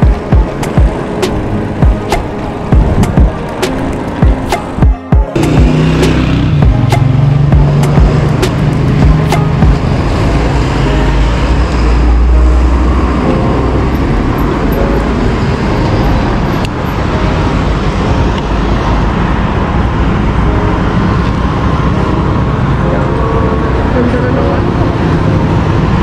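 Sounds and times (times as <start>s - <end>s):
wind buffeting microphone: 0.0s - 4.5s
road traffic noise: 0.0s - 26.0s.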